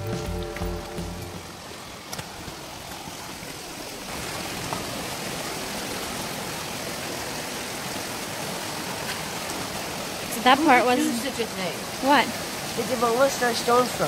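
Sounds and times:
water running over rocks: 0.0 - 14.0.

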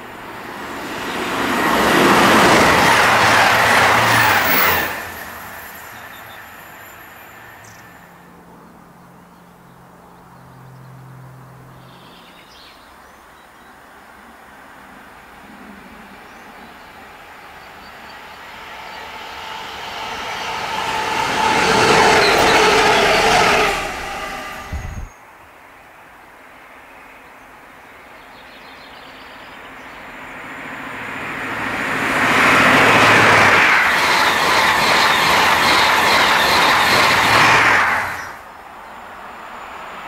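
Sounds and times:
train rushing past: 0.0 - 8.3, 15.8 - 25.2, 29.6 - 40.0
diesel locomotives passing: 0.0 - 9.2, 14.9 - 25.2, 29.3 - 40.0.

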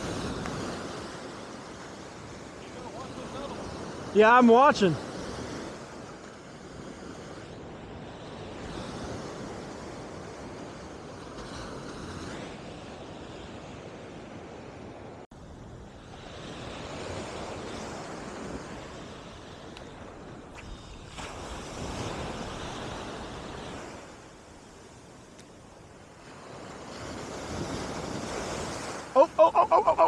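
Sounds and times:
waves breaking on beach: 0.0 - 30.0
wind buffeting microphone: 5.0 - 29.2.

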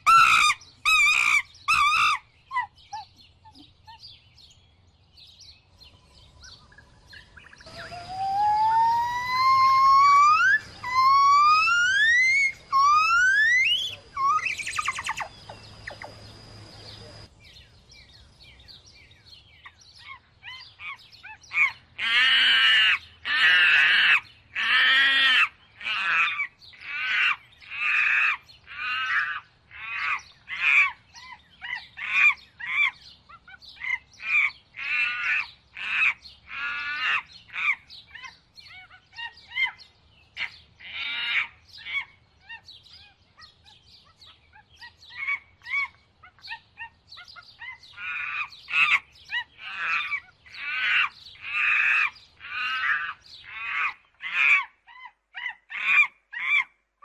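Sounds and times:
harsh repeated bird calls: 0.0 - 4.2, 6.3 - 17.3, 19.6 - 56.7
whistled bird notes: 5.9 - 18.2.

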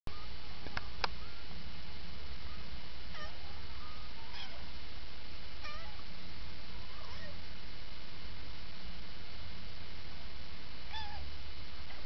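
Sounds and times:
kittens mewing: 3.1 - 4.7, 5.6 - 6.0, 6.8 - 7.4, 10.9 - 11.3.

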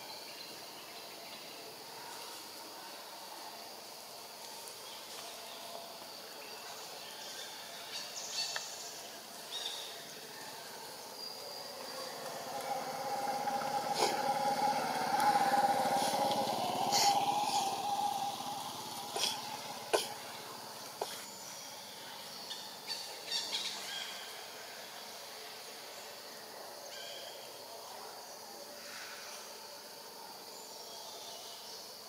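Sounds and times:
insects buzzing: 0.0 - 27.0
vehicle engine hum: 10.7 - 22.3.

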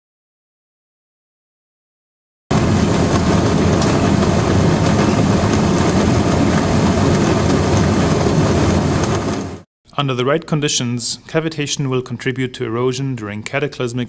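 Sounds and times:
low hum: 2.5 - 9.6.

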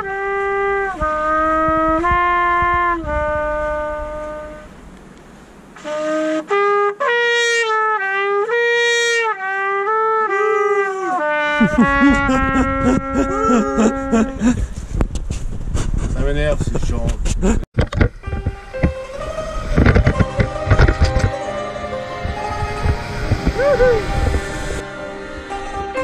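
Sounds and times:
trumpet playing slow melody: 0.0 - 4.8, 5.8 - 14.4, 18.1 - 26.0
low rumble: 0.9 - 5.6, 11.6 - 26.0.

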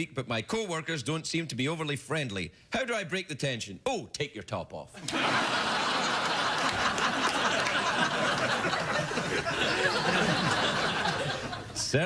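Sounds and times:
studio audience laughing: 5.0 - 11.9.

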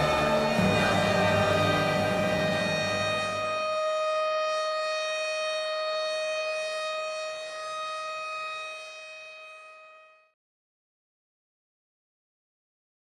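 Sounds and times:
siren-like alarm tone: 0.0 - 10.4.

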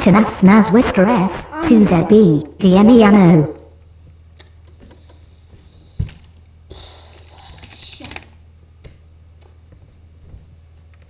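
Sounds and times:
low electrical hum: 0.0 - 11.0
keyboard typing: 3.5 - 5.3.

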